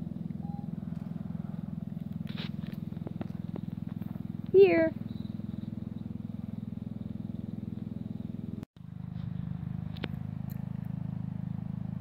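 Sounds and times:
throbbing motor hum: 0.0s - 12.0s.

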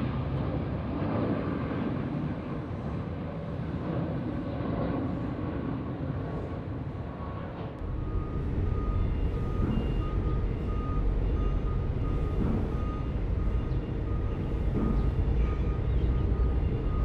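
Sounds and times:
low rumble: 7.8s - 17.0s
vehicle reversing alarm beeping: 7.8s - 17.0s.

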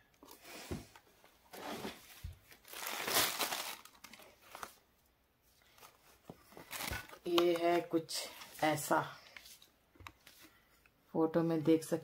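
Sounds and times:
cloth rustling: 1.5s - 4.8s
plastic wrapping crinkling: 1.6s - 4.8s, 5.6s - 7.8s.

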